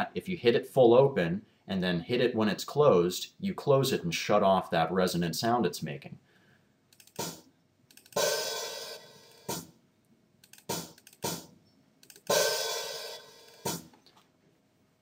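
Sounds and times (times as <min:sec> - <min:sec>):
open hi-hat ringing: 0:08.1 - 0:09.7, 0:12.2 - 0:13.9.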